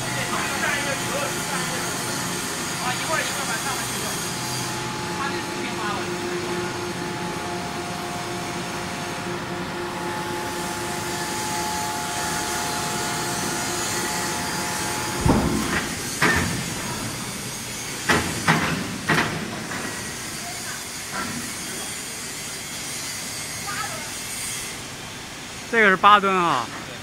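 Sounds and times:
crane hoist humming: 0.0 - 27.0
heavy metallic clanks: 14.8 - 19.9.

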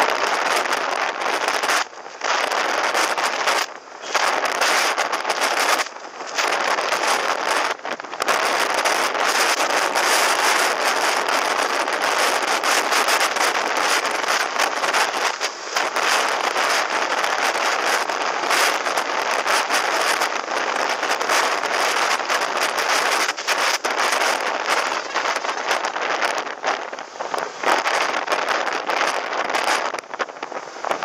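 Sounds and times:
wind buffeting microphone: 0.0 - 31.0.

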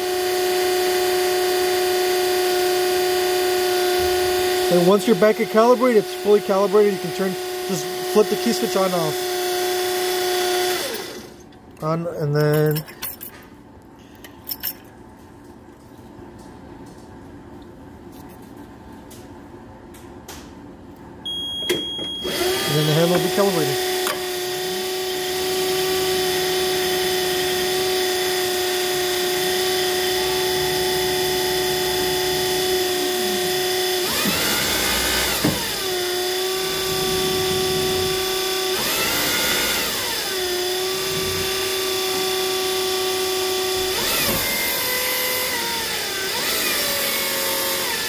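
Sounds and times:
electric motor whine: 0.0 - 11.4, 22.2 - 48.0.

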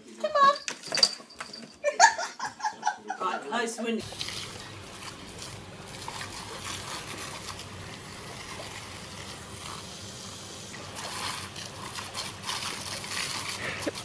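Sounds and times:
water splashing: 4.0 - 9.7
garden hose water spraying: 4.0 - 14.0.

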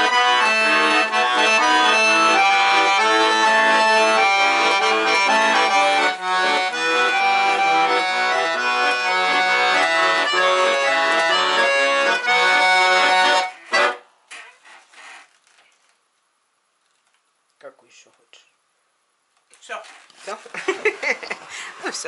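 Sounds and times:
button accordion playing: 0.0 - 14.1.

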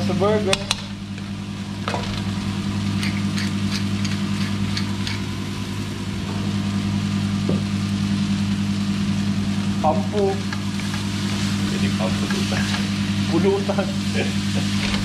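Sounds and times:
steady low hum: 0.0 - 15.0
noodles frying in a wok: 0.8 - 15.0.

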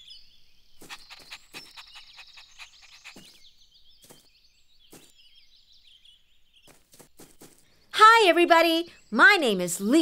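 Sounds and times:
small birds chirping: 0.0 - 10.0
cartoon puppy breath sounds: 0.8 - 3.4.

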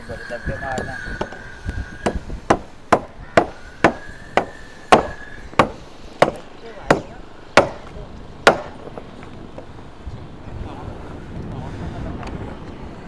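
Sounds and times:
hand tool chopping wood: 2.0 - 8.8.

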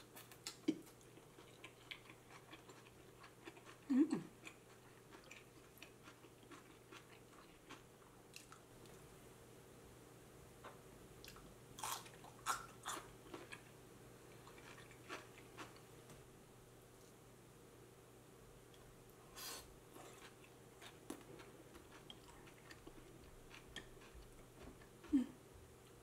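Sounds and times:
food crunching: 0.0 - 9.0, 11.2 - 15.9, 19.9 - 25.2.

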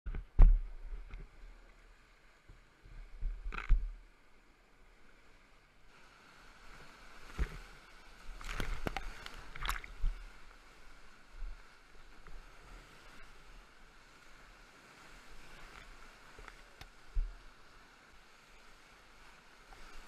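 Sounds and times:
kayak splashing and knocking: 8.3 - 10.2.

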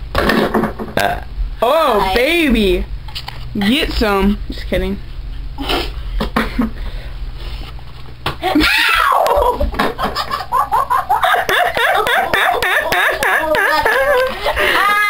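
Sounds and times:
girl squealing: 8.4 - 9.6, 12.8 - 15.0
girls laughing: 8.6 - 15.0.

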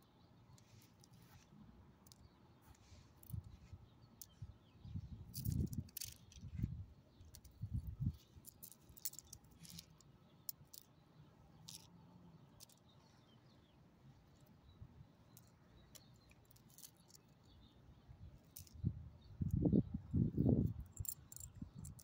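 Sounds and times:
dog collar tags jingling: 7.3 - 9.9, 20.6 - 22.0.

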